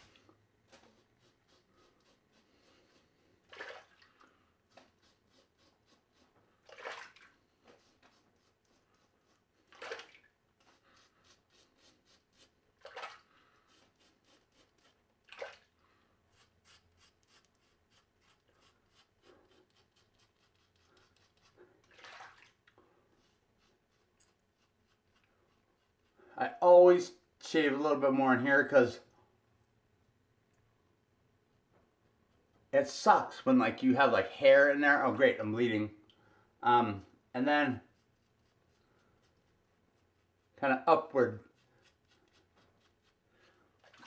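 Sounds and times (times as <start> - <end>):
razor rasping on skin: 16.3 - 21.6.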